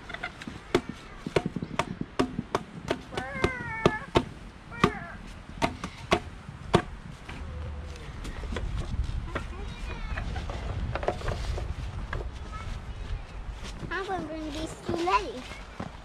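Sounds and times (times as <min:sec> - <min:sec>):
sharp knocks: 0:00.4 - 0:05.0, 0:05.6 - 0:06.9.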